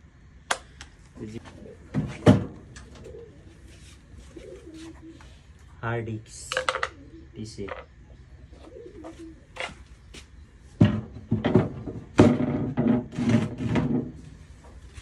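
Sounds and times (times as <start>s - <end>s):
knocks and scrapes on wood: 10.8s - 14.8s.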